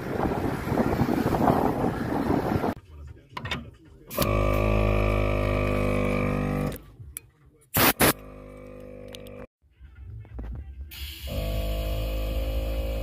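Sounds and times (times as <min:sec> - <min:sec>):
air compressor droning: 0:04.1 - 0:06.8, 0:07.8 - 0:09.5, 0:10.9 - 0:13.0.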